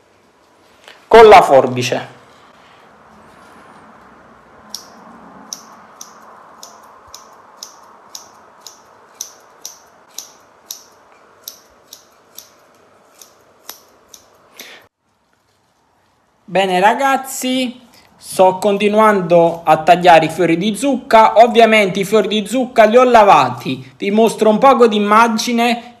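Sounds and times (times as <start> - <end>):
scissors snipping: 4.7 - 14.4.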